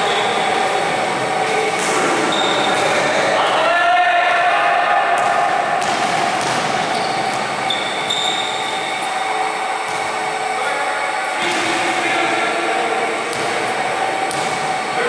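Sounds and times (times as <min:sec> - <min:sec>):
basketball bouncing on gym floor: 0:05.2 - 0:07.9, 0:13.3 - 0:13.7, 0:14.3 - 0:14.7.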